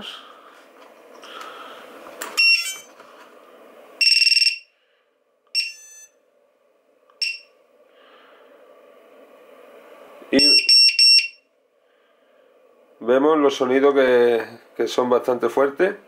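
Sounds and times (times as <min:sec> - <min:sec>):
piezo beeper beeps: 0:02.4 - 0:02.9, 0:04.0 - 0:04.7, 0:05.5 - 0:06.2, 0:07.2 - 0:07.6, 0:10.3 - 0:11.5.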